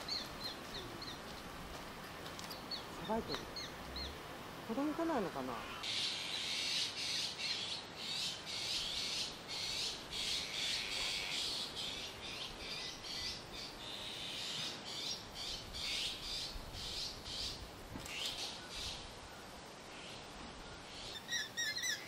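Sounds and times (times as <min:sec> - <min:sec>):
magpies calling harshly: 0:21.0 - 0:22.0.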